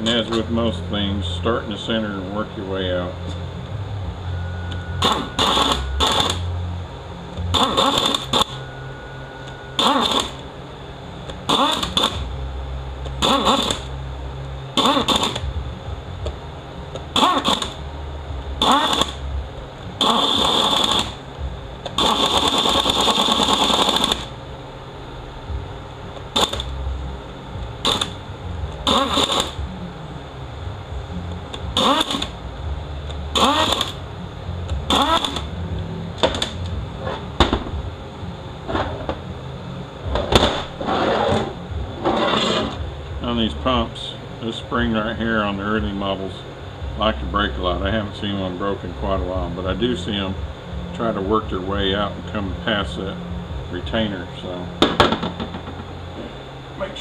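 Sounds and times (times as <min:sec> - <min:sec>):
cordless screwdriver whirring: 0:31.8 - 0:32.3, 0:33.4 - 0:34.0, 0:34.9 - 0:35.4.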